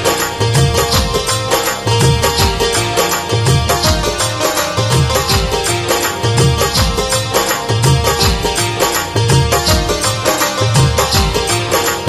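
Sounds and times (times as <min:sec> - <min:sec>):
keyboard melody: 0:00.0 - 0:12.0
steady drum beat: 0:00.0 - 0:12.0.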